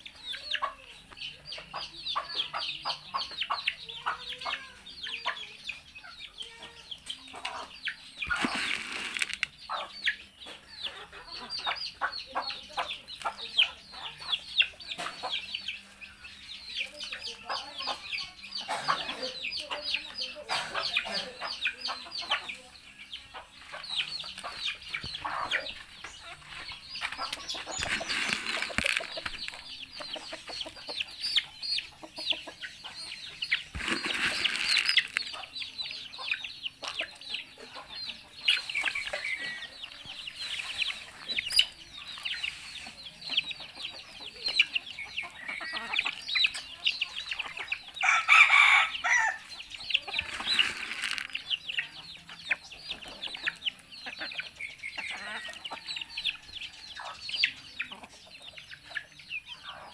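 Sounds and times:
chicks peeping: 0.0s - 59.9s
hens clucking: 0.0s - 59.9s
loud chicken calls: 8.2s - 9.9s, 48.0s - 51.4s.

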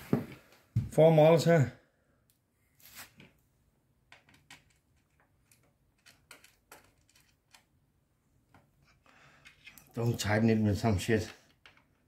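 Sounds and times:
small screws clicking: 4.1s - 7.7s.

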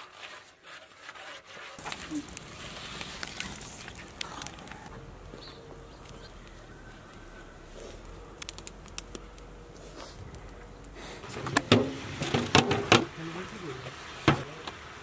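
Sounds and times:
wood fire crackling pops: 1.8s - 13.2s.

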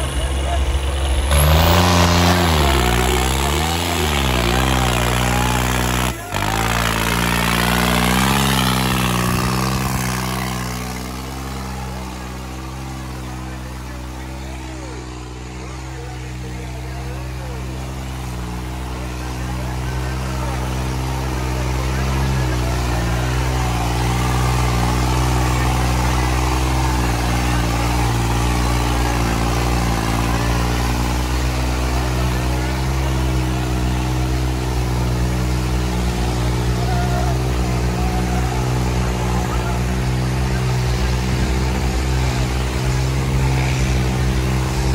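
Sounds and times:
tractor diesel engine labouring: 0.0s - 44.9s.

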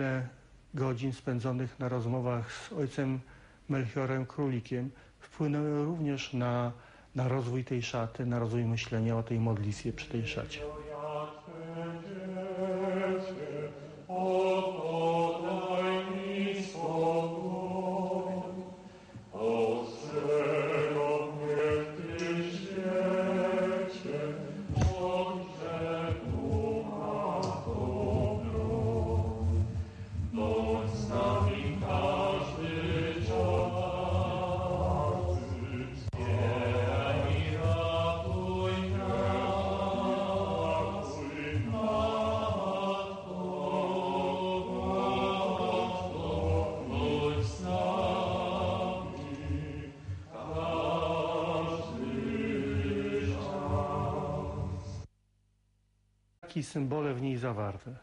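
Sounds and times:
choir chanting: 10.3s - 55.0s.

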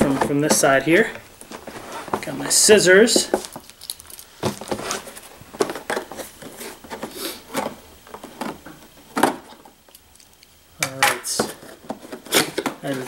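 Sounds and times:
cardboard box scraping and rustling: 1.6s - 2.2s.

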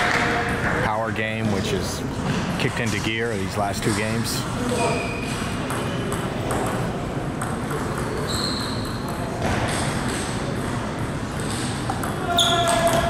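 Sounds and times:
high-pitched squeak: 8.2s - 9.0s.

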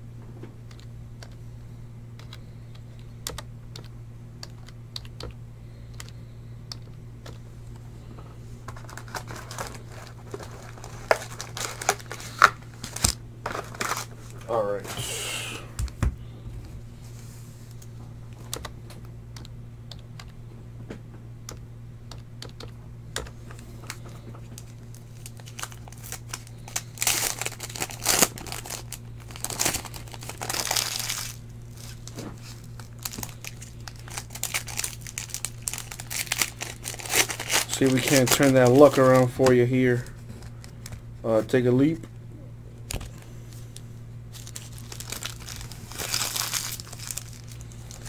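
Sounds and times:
foil wrappers crinkling and tearing: 8.7s - 14.5s, 23.8s - 41.0s, 44.3s - 48.0s.

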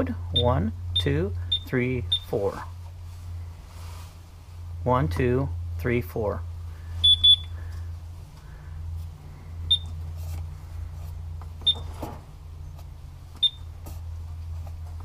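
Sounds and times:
low steady hum: 0.0s - 15.0s
short high keypad beeps: 7.0s - 7.5s.

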